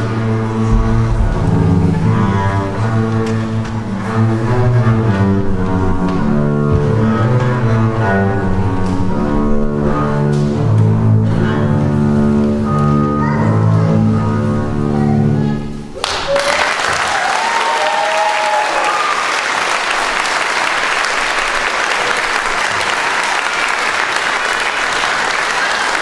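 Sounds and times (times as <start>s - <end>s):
double basses bowing: 0.0s - 16.1s
audience applause: 16.0s - 26.0s.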